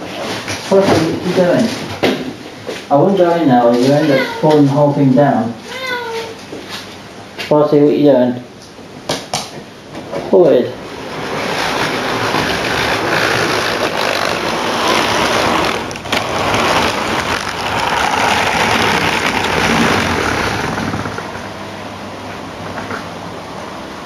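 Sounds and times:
model train rattling on track: 11.1 - 21.3.

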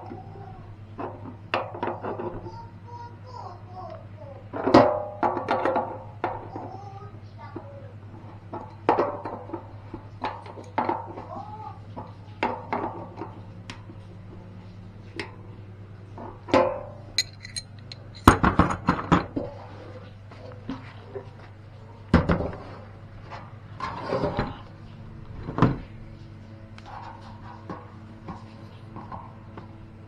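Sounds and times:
faint steady hum: 0.0 - 30.0
metal hardware clanking: 16.7 - 18.4.

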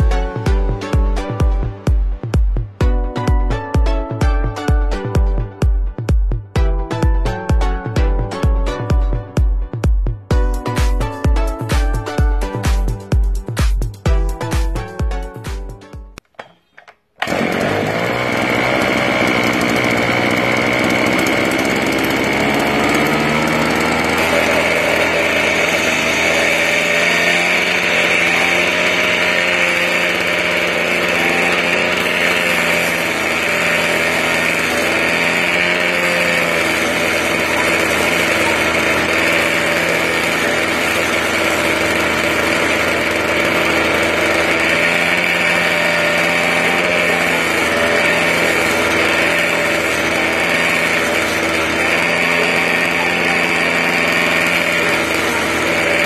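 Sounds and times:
brushcutter engine running: 0.0 - 1.9, 16.2 - 56.0.

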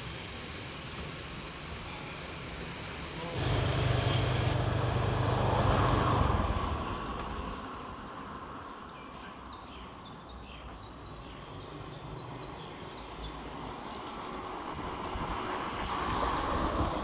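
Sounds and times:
quiet street ambience: 0.0 - 17.0
car driving past: 3.3 - 7.8.

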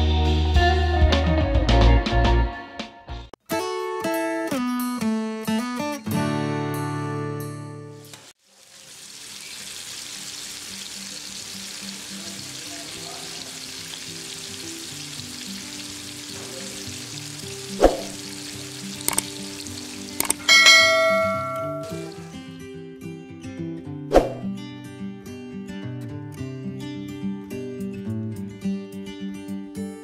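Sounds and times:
fish sizzling in oil: 8.0 - 22.4
sharp clicks: 19.0 - 19.4, 20.2 - 20.5
loud ringing chime: 20.4 - 22.2.

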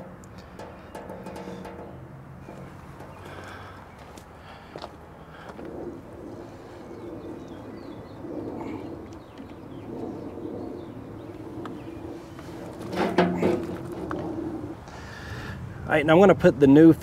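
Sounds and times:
metal canister clunk: 0.0 - 3.2, 12.8 - 14.1.

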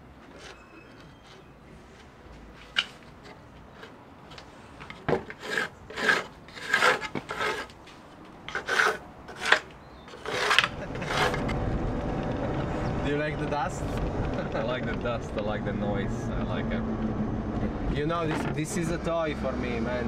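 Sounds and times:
pencil scratching on wood: 5.3 - 7.7, 8.5 - 11.5.

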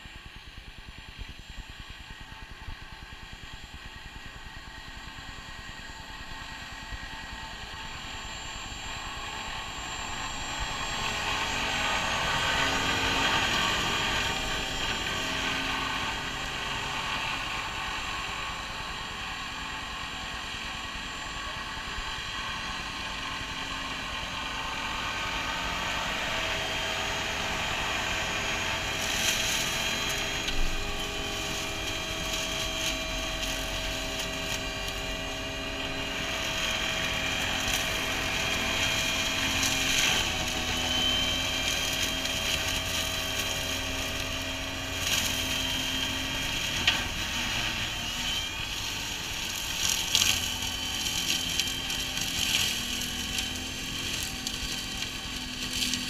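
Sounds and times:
tractor engine drone: 0.0 - 56.0
flail hedge cutter chopping: 48.9 - 56.0.

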